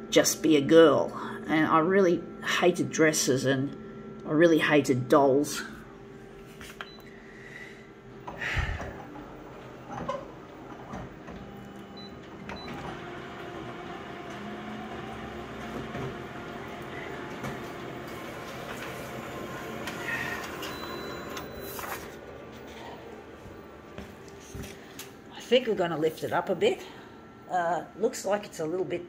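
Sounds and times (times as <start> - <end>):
photocopier running: 0.0 - 29.0
scan carriage moving: 8.2 - 25.2
photocopier clicks and clunks: 9.1 - 22.7.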